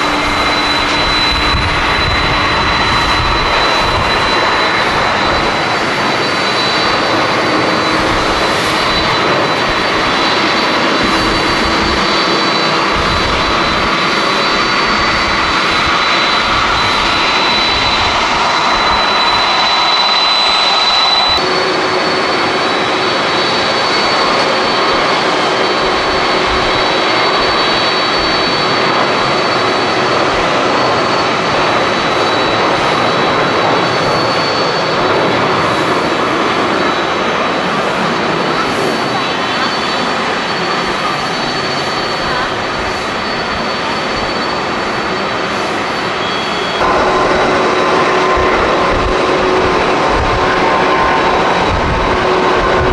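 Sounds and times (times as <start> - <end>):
wind rumble on microphone: 0.0 - 6.2, 46.8 - 52.9
jet engines at takeoff: 0.0 - 52.9.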